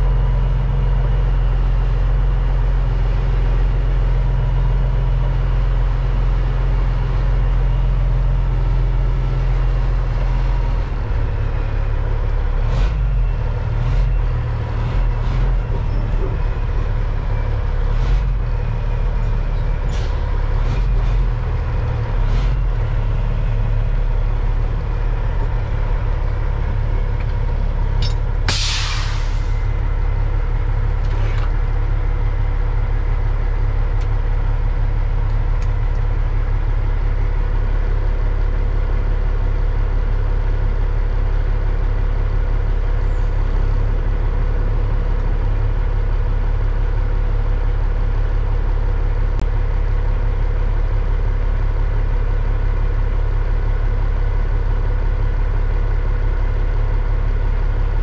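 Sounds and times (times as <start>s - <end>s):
truck diesel engine drone: 0.0s - 58.0s
air system hiss: 28.5s - 29.5s.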